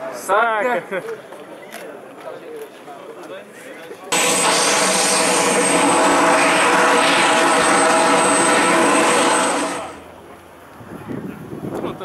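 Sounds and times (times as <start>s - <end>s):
jet engine whine: 4.1s - 10.6s.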